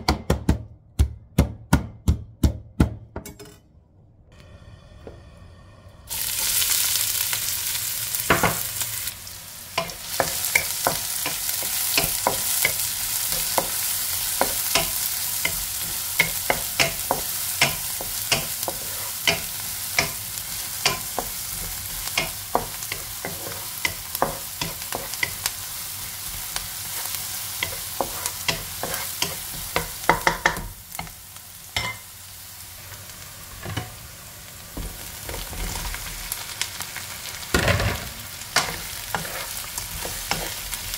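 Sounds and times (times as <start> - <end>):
onion sizzling in hot oil: 6.1 - 40.9
wooden spatula scraping a pan: 15.5 - 20.1, 20.8 - 25.4, 26.4 - 30.4, 38.6 - 40.9.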